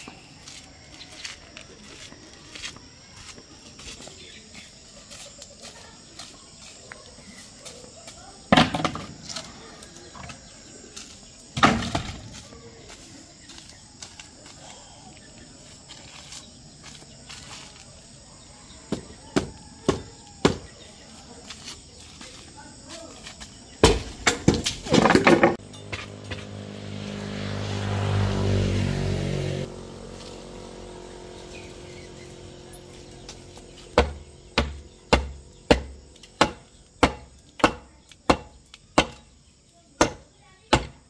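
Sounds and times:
insects chirring: 0.0 - 41.0
wooden boards clattering: 11.6 - 12.4, 23.8 - 25.6.

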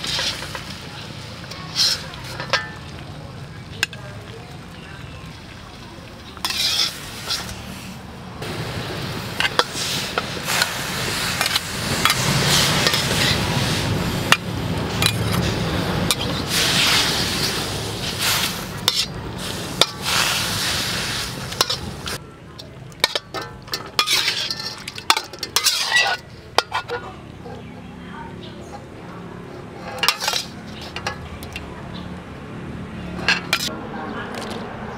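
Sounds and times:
metal ladle scraping and clinking: 0.0 - 0.8, 1.4 - 3.0, 6.4 - 7.7, 9.4 - 13.5, 14.3 - 20.6, 21.3 - 22.2, 23.0 - 27.9, 28.6 - 31.7, 33.2 - 33.7
beef sizzling in a wok: 6.2 - 22.2.

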